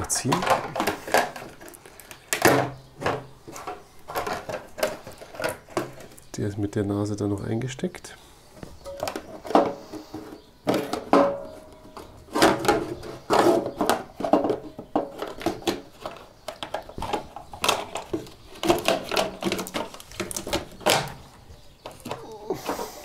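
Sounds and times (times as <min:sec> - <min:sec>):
plastic cover knocking and rattling: 0:00.0 - 0:06.3, 0:08.8 - 0:22.8.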